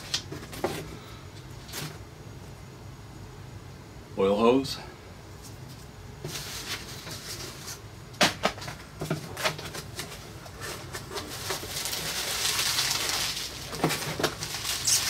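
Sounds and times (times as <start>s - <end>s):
paper rustling: 5.8s - 7.8s, 8.6s - 15.0s
bubble wrap crinkling: 9.3s - 15.0s.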